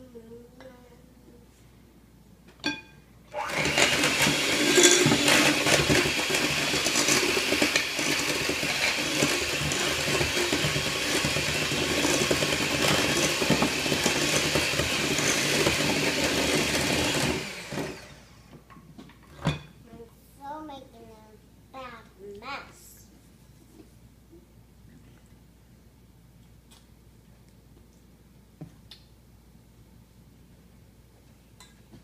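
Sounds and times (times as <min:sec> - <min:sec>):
electric hand mixer running: 0:03.3 - 0:18.4.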